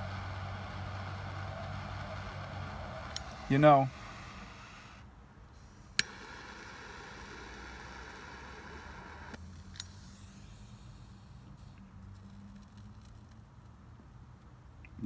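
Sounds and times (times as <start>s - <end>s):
low steady car cabin hum: 0.0s - 5.0s, 6.0s - 9.4s.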